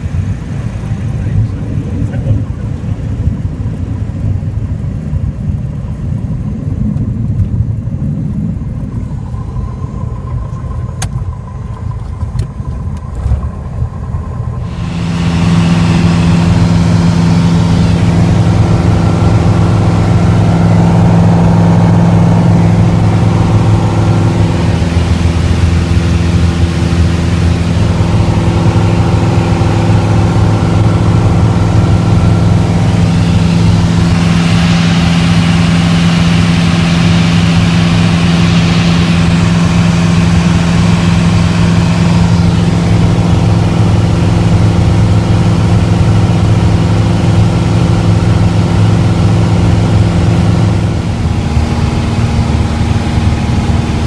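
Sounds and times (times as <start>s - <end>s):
aircraft rumbling on runway: 0.0s - 54.0s
propeller engine droning: 0.0s - 54.0s.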